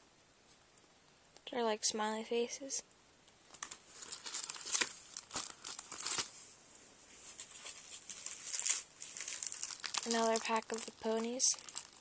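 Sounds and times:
plastic packaging crinkling: 3.5 - 6.4, 7.2 - 12.0.

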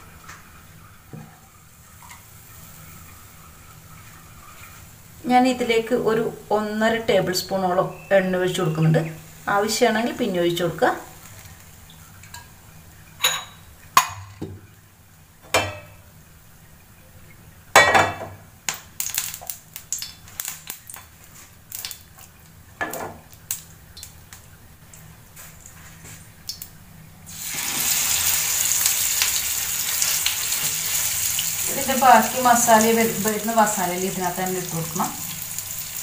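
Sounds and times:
fish sizzling in hot oil: 1.6 - 14.0, 18.7 - 24.6, 27.2 - 36.0
kitchenware knocks and clinks: 15.5 - 16.0, 17.8 - 18.4.

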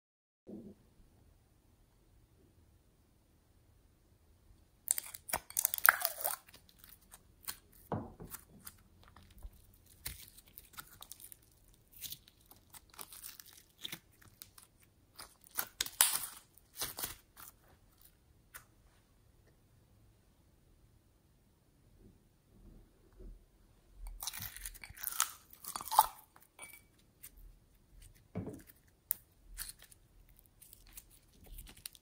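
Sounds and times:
sticky slime clicks and crackles: 4.9 - 17.1.

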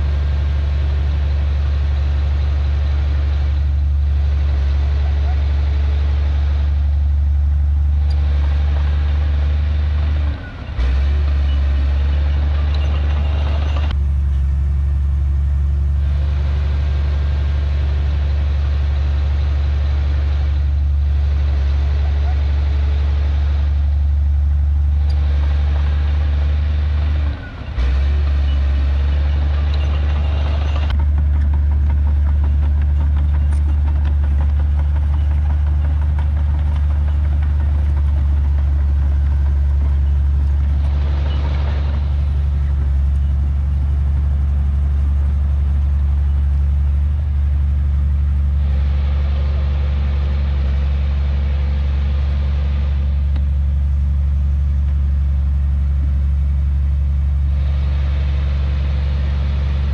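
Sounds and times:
bulldozer diesel engine droning: 0.0 - 59.9.

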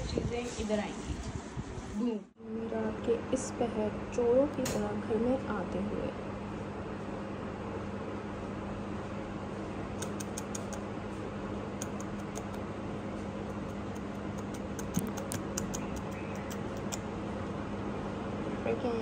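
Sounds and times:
steady background hum: 0.0 - 19.0
light irregular clicking: 13.5 - 17.0.

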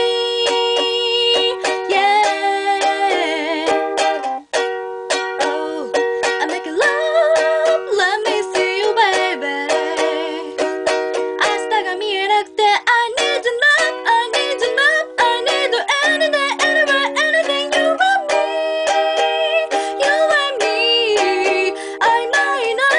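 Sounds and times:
ukulele strumming: 0.0 - 22.9
person singing with vibrato: 11.4 - 22.9.

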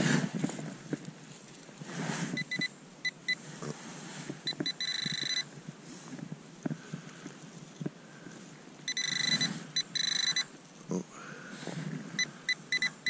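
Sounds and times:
soil crumbling and rustling: 0.0 - 2.5, 5.5 - 8.9
metal detector pinpointer beeping: 2.4 - 3.4, 4.5 - 5.5, 8.9 - 10.5, 12.2 - 13.0.

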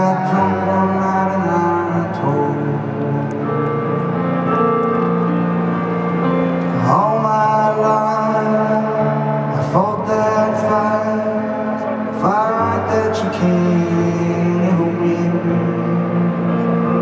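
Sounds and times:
man singing slowly: 0.0 - 3.4, 6.8 - 16.4
piano chords: 0.0 - 17.0.

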